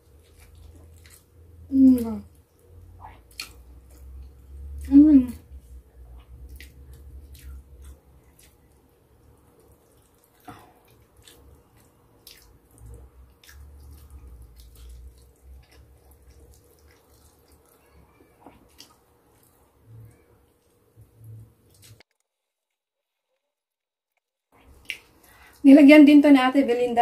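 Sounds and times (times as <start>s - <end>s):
wet chewing mouth clicks: 2.9s - 5.5s, 6.1s - 20.2s.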